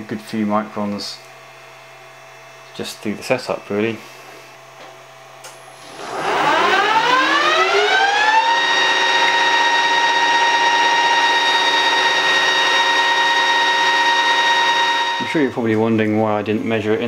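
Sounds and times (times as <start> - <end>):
metal lathe spindle whine: 5.7 - 15.6.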